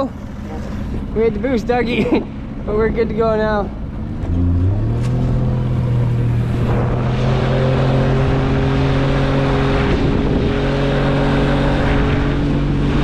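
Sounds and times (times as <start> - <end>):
outboard motor running: 0.0 - 13.0
water rushing along hull: 0.0 - 13.0
wind noise: 5.2 - 13.0.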